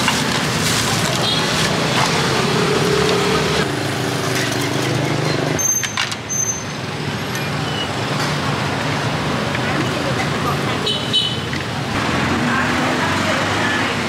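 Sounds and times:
street traffic: 0.0 - 14.0
short high squeaks: 5.6 - 6.8.

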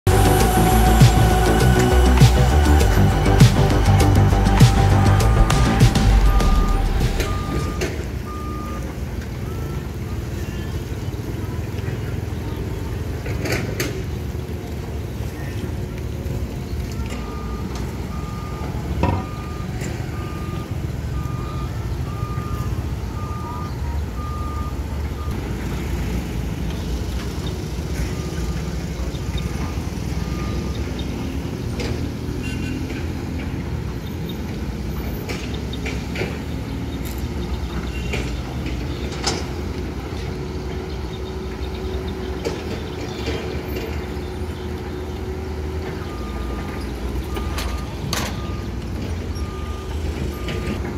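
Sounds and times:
excavator diesel engines rumbling: 0.0 - 50.9
backup alarm beeping: 0.1 - 10.2, 17.0 - 25.4, 45.9 - 50.9.

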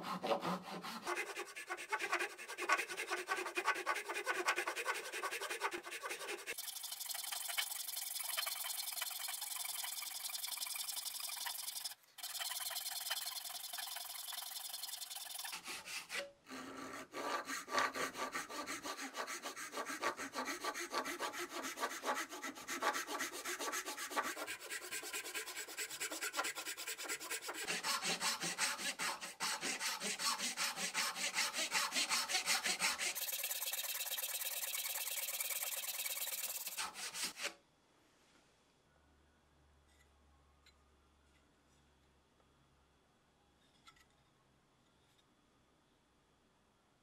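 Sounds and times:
hand saw cutting wood: 0.0 - 37.6.

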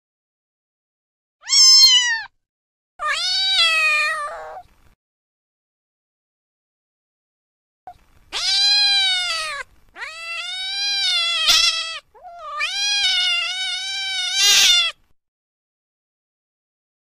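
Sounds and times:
cat meowing: 1.4 - 2.3, 3.0 - 4.7, 8.3 - 15.0.

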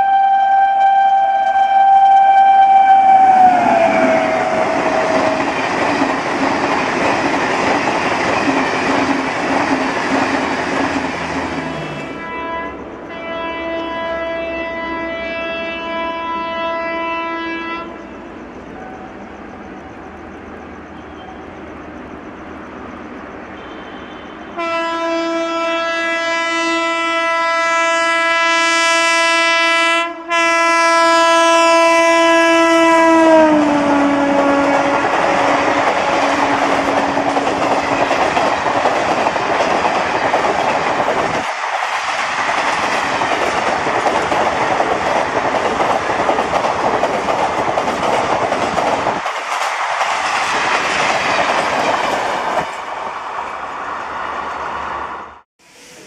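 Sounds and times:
locomotive horn blast: 0.0 - 5.5, 11.6 - 18.1, 23.6 - 38.1
train wheels clattering: 3.4 - 12.2, 34.4 - 53.2.

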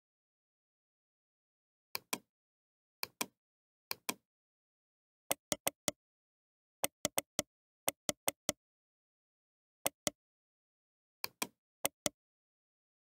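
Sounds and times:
computer mouse button clicking: 5.3 - 6.0, 6.8 - 8.6, 11.2 - 12.2.

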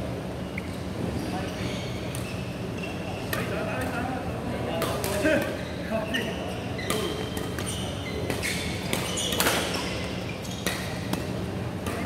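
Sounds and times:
rackets striking shuttlecock: 6.9 - 9.8, 10.6 - 12.0.

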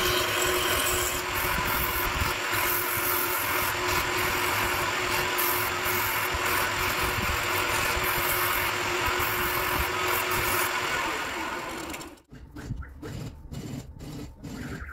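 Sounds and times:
sandpaper hissing on spinning wood: 0.0 - 11.3
lathe motor hum: 0.0 - 12.3.

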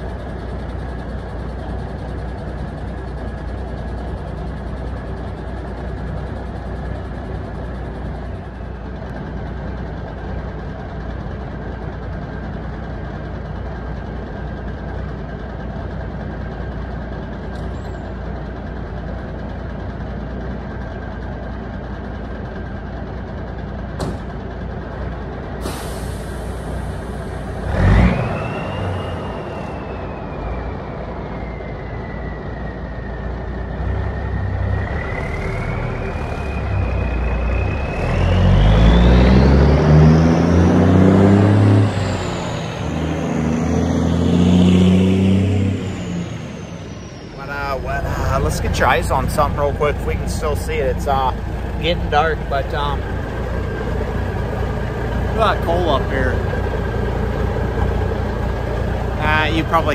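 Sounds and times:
diesel truck engine idling: 0.0 - 28.0, 41.8 - 59.9
air brakes hissing: 25.6 - 27.6.

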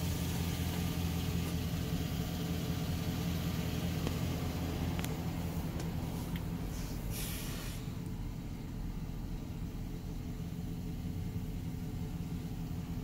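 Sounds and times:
truck engine idling: 0.0 - 13.0
brief hiss: 6.2 - 7.9.

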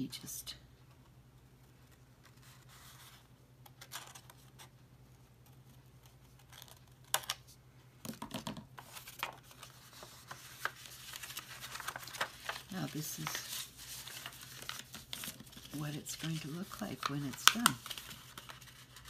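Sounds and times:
paper rustling and tapping: 8.0 - 19.0.

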